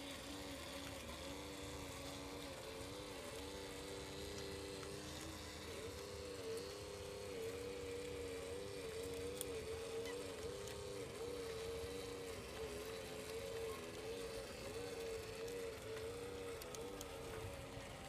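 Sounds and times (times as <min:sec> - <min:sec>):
model truck mechanical hum: 0:00.0 - 0:18.0.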